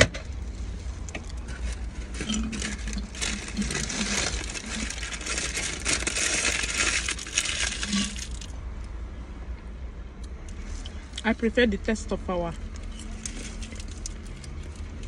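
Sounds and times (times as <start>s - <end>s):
slurping through a straw: 1.9s - 8.5s.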